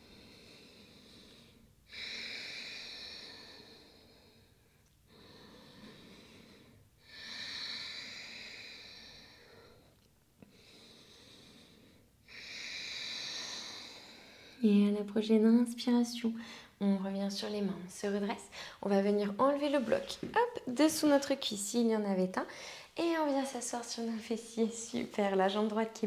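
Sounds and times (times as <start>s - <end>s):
woman breathing deeply: 0.0s - 14.6s, 16.4s - 16.8s, 18.4s - 18.8s, 22.5s - 23.0s.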